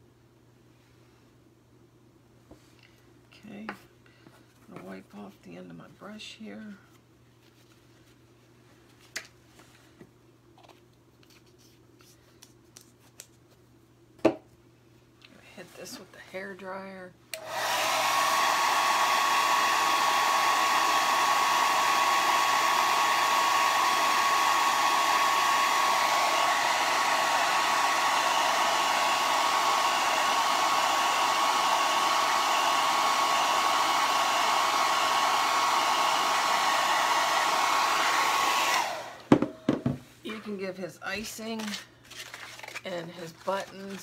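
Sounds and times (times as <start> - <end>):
hair dryer blowing: 17.3 - 40.0.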